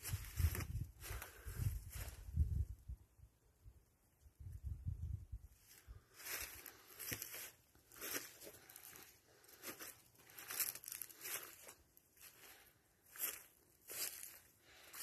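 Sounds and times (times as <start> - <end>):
footsteps on gravel: 12.5 - 15.0.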